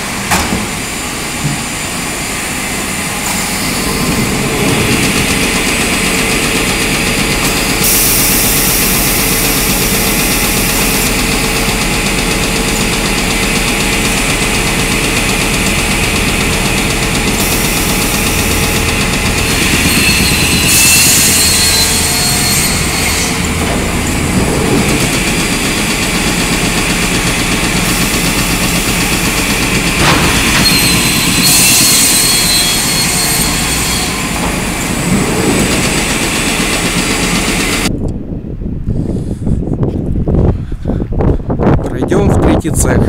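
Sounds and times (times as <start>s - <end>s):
panel saw running: 0.0s - 37.9s
saw cutting board: 7.4s - 34.3s
wind on microphone: 37.8s - 43.0s.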